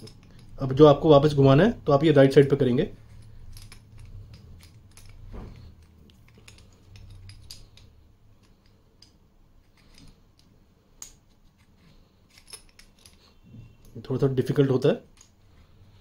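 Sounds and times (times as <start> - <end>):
metallic clicks and scrapes: 0.0 - 0.6, 2.9 - 14.0.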